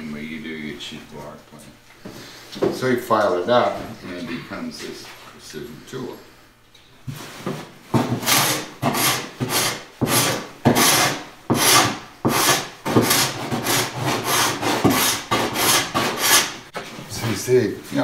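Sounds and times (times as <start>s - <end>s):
scraper rasping on wood: 8.0s - 16.6s.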